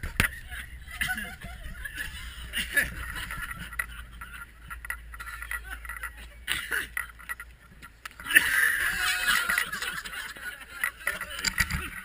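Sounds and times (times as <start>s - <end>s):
man gagging and coughing: 6.5s - 7.0s.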